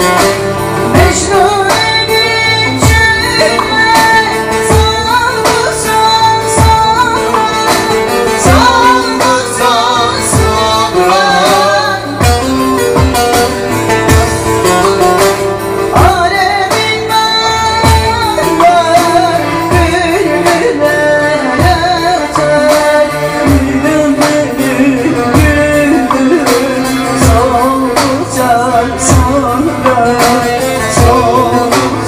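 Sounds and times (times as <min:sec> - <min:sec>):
woman singing: 0:00.0 - 0:13.5, 0:14.2 - 0:32.0
plucked strings: 0:00.0 - 0:32.0
low drum beat: 0:12.2 - 0:16.5, 0:17.8 - 0:32.0.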